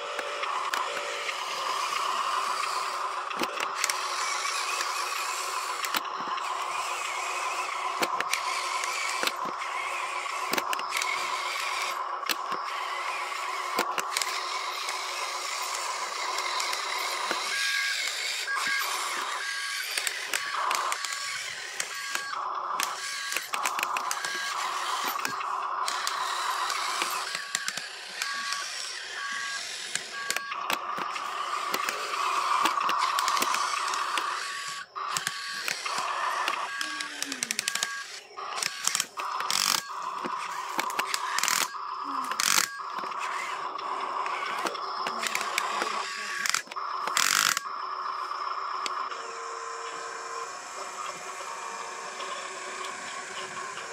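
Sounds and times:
scattered clicks: 0:00.0 - 0:53.9
toy truck motor whirring and grinding: 0:00.0 - 0:53.9.

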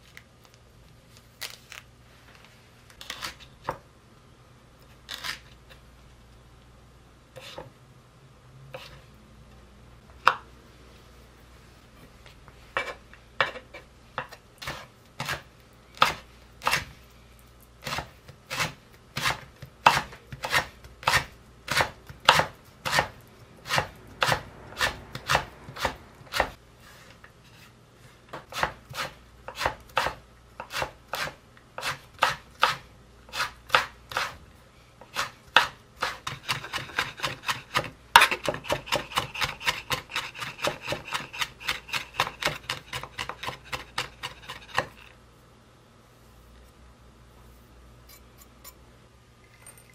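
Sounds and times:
knife chopping on wooden board: 0:17.8 - 0:26.6, 0:28.4 - 0:34.4, 0:35.1 - 0:44.9.

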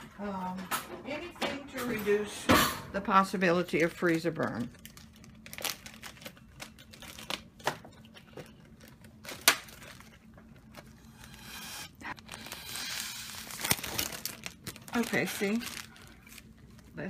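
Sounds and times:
plastic bag crinkling: 0:03.6 - 0:11.3, 0:12.0 - 0:17.0.

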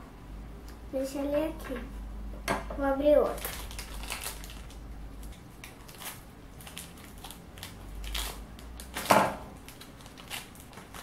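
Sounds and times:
foil bag crinkling: 0:03.2 - 0:11.0.

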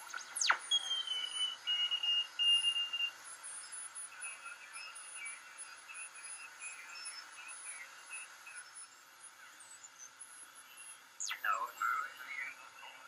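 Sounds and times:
radio static hiss: 0:00.0 - 0:01.8, 0:10.3 - 0:13.0
radio receiver whistles: 0:00.0 - 0:08.9.

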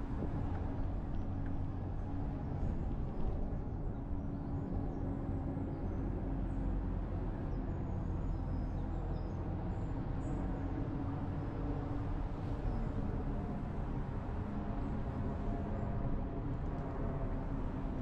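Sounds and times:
bus engine and road rumble: 0:00.0 - 0:18.0.

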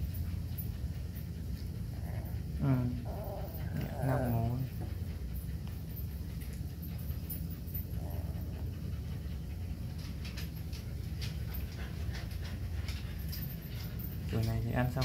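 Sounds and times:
puppies panting: 0:00.0 - 0:15.0.

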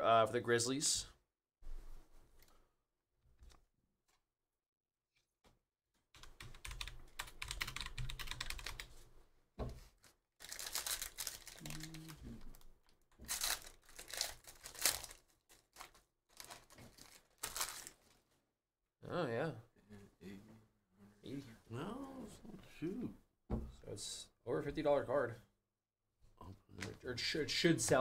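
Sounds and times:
foil wrapper crinkling and tearing: 0:10.0 - 0:18.2.

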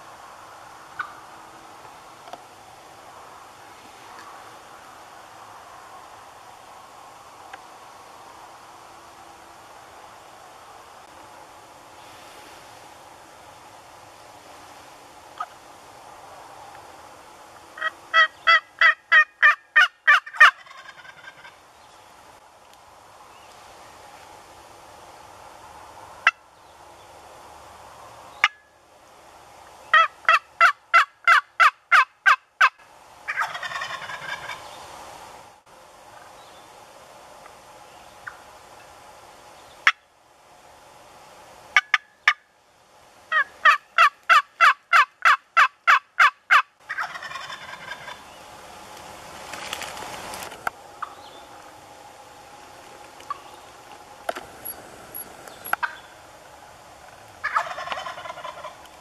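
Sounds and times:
turkey clucks: 0:01.0 - 0:01.2, 0:17.8 - 0:21.6, 0:29.9 - 0:34.6, 0:41.8 - 0:42.4, 0:43.3 - 0:48.2, 0:51.0 - 0:51.2, 0:55.6 - 0:56.1, 0:57.4 - 0:59.0
turkey yelps: 0:17.8 - 0:21.5, 0:29.9 - 0:32.7, 0:33.3 - 0:34.6, 0:43.3 - 0:48.2, 0:55.7 - 0:56.0, 0:57.4 - 0:58.8
turkey rattling gobble: 0:17.8 - 0:21.6, 0:29.9 - 0:34.6, 0:41.8 - 0:42.4, 0:43.3 - 0:48.2, 0:55.7 - 0:56.1, 0:57.4 - 0:58.8.

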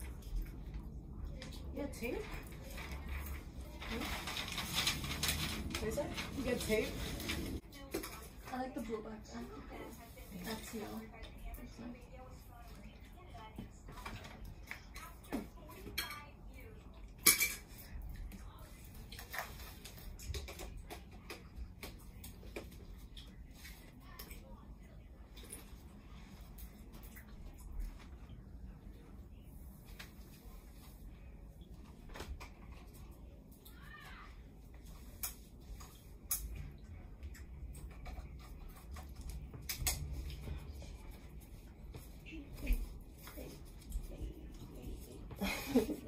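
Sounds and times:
rustling and handling noises: 0:00.0 - 0:46.0.

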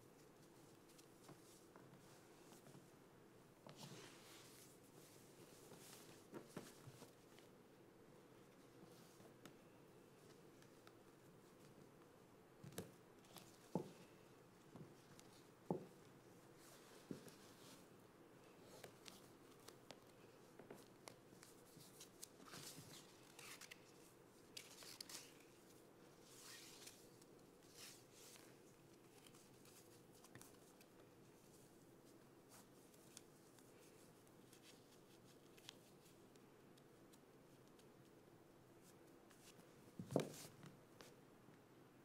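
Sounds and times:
ribbons rustling and swishing: 0:16.5 - 0:36.2.

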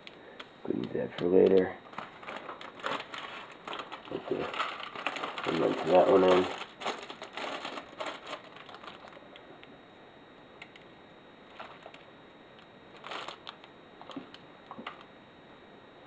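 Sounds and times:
packaging rustling: 0:01.8 - 0:09.4, 0:11.5 - 0:12.1, 0:12.9 - 0:15.0.

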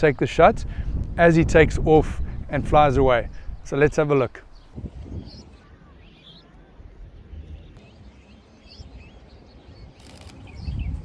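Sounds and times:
small birds chirping: 0:03.3 - 0:11.0.

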